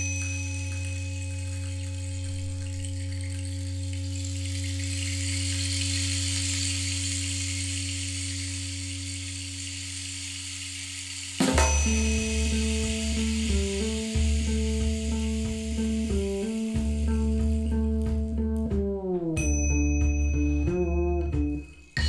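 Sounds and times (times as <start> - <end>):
low synth bass drone: 0.0 - 10.0, 11.6 - 21.7
hissing wash: 0.0 - 18.1
electronic music: 11.4 - 19.4.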